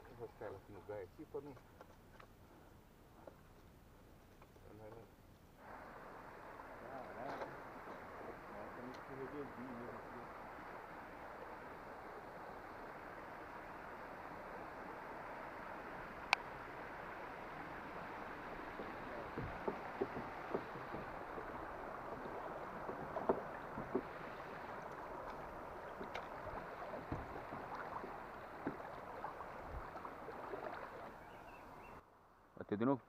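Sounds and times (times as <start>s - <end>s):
river water rushing and lapping: 5.6s - 32.0s
knocks and clicks against kayak: 18.6s - 29.0s.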